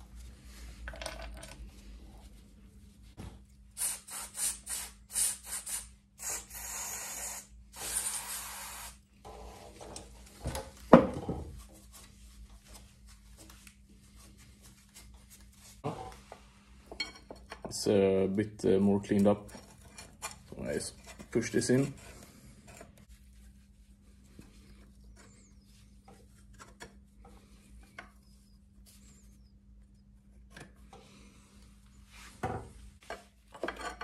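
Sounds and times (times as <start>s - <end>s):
aerosol spray hissing: 3.8s - 9.0s.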